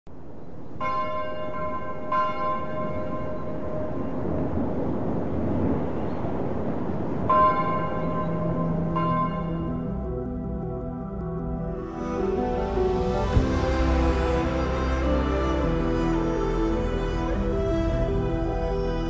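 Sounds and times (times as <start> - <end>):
church bell tolling: 0.8 - 4.6, 7.3 - 10.5.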